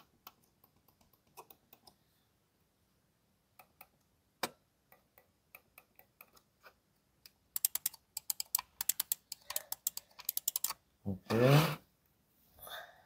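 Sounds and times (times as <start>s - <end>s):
computer mouse clicks: 0.0s - 2.0s, 7.2s - 10.8s.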